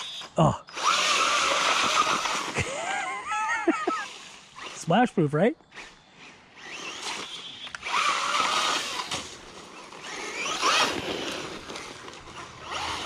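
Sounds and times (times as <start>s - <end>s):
rc car electric motor whining: 0.0s - 2.8s, 3.8s - 4.9s, 5.7s - 13.0s
tires hissing with water spray: 3.7s - 5.1s, 6.3s - 12.9s.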